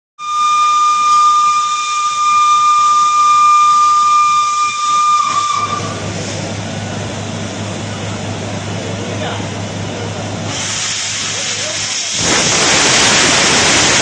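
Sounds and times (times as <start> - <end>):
steam whistle blowing: 0.2 - 6.1
hissing steam: 0.9 - 7.0, 10.3 - 14.0.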